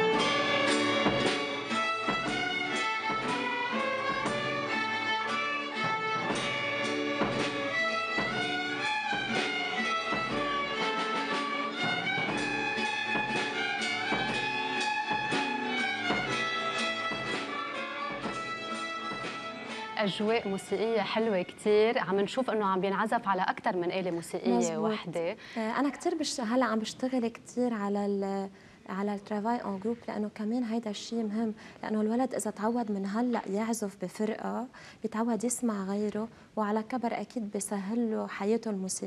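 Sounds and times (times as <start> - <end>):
drum kit beat: 0.0 - 20.4
violins playing in unison: 0.0 - 20.8.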